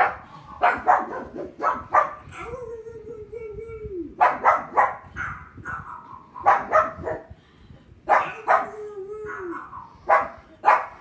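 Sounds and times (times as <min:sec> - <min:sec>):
dogs barking on television: 0:00.0 - 0:02.5, 0:04.2 - 0:07.4, 0:08.0 - 0:11.0.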